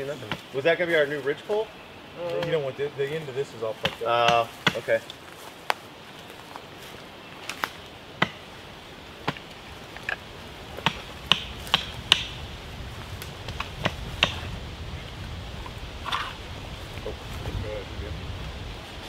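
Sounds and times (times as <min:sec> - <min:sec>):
wood being struck: 0:03.8 - 0:05.0, 0:08.2 - 0:08.5, 0:09.2 - 0:12.4, 0:13.4 - 0:14.5.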